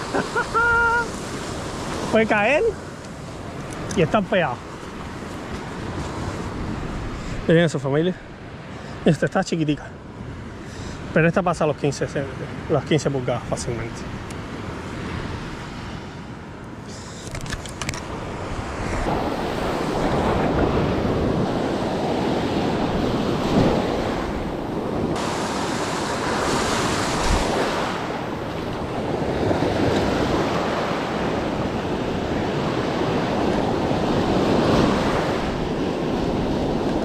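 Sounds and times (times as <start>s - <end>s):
ocean surf breaking: 0.0s - 37.0s
wind gusting on microphone: 17.3s - 37.0s.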